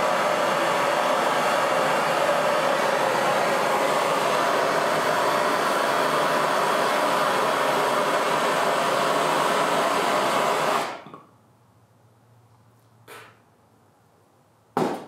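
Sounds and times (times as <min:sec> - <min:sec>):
propane torch hissing: 0:00.0 - 0:11.0.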